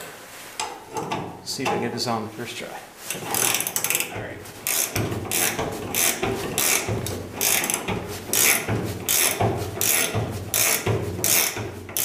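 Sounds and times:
ratcheting wrench clicking: 3.1s - 12.0s.

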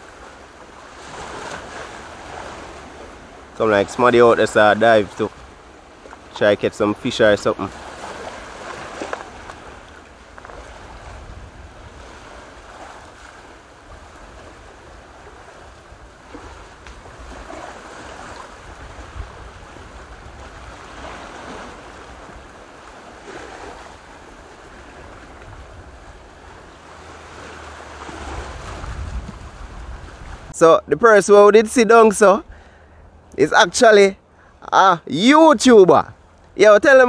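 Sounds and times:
surf washing onto beach: 0.0s - 32.5s
wind rumbling on microphone: 7.0s - 30.6s.

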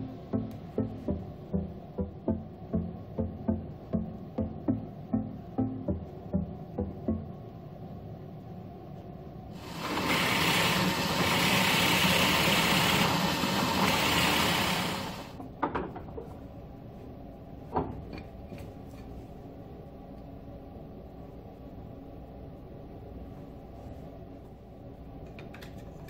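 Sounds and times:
drill press boring into wood: 9.6s - 15.3s.

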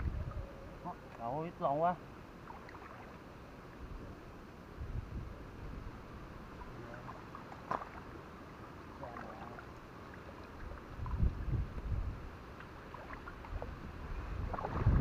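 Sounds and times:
water sloshing and splashing: 2.2s - 4.2s, 6.4s - 15.0s.

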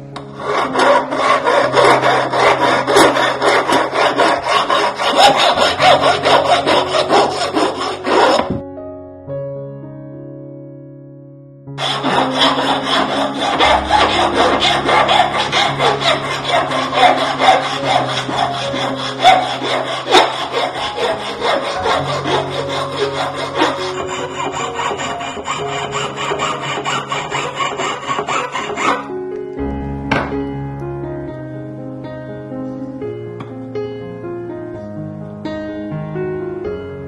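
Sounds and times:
soft background music: 0.0s - 37.0s
hand file rasping on metal: 0.4s - 8.6s, 11.8s - 29.0s.

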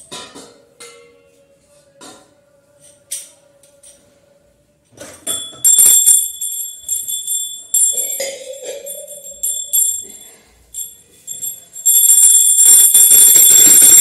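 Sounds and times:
brass vessels clinking: 5.2s - 14.0s
brass hand bell ringing: 5.3s - 14.0s.

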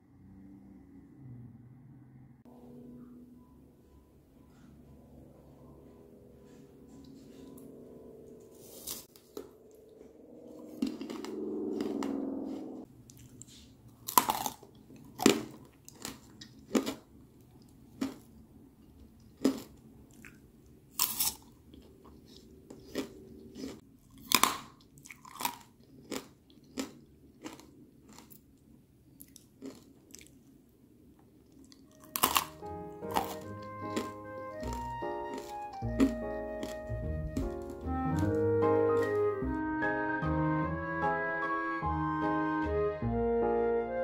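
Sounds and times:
piano music: 2.5s - 12.9s, 31.9s - 44.0s
crunchy chewing of candied apple: 10.5s - 18.4s, 19.0s - 30.6s, 31.4s - 39.3s.

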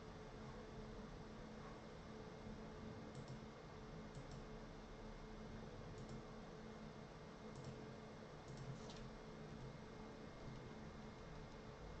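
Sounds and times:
low electrical hum: 0.0s - 12.0s
computer mouse clicks: 3.1s - 3.4s, 4.1s - 4.5s, 6.0s - 6.2s, 7.5s - 7.8s, 8.4s - 9.1s.

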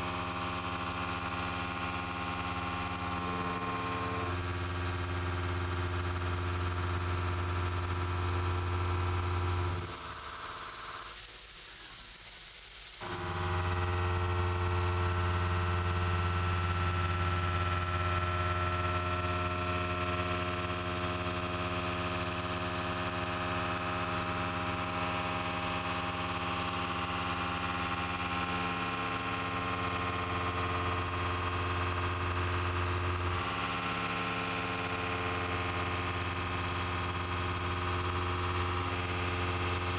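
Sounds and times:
milling machine cutting steel: 13.0s - 26.3s.

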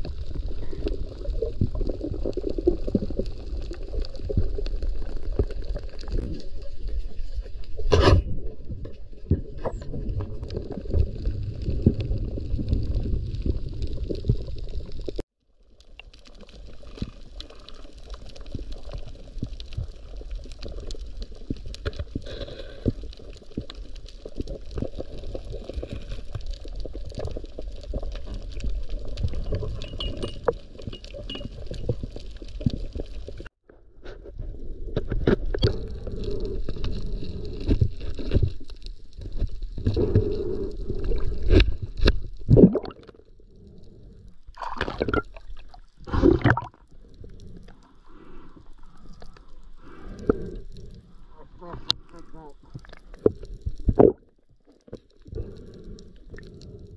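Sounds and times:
underwater rumble of moving water: 0.0s - 33.5s, 34.3s - 56.9s
small underwater clicks: 10.1s - 33.5s, 35.0s - 56.9s.

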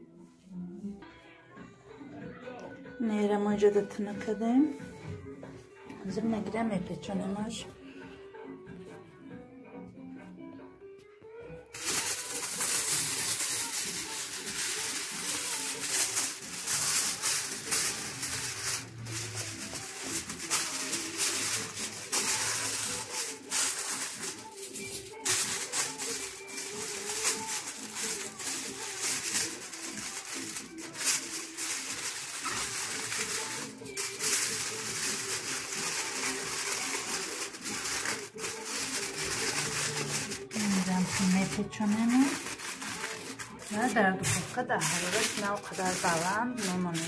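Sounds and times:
aluminium foil crinkling: 11.7s - 47.0s.

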